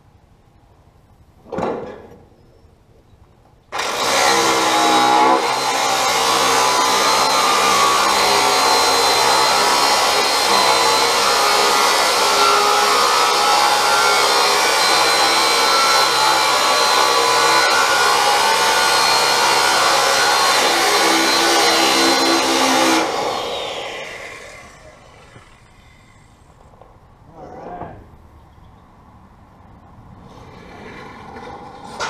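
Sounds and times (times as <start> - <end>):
power tool cutting sheet metal: 3.7 - 26.2.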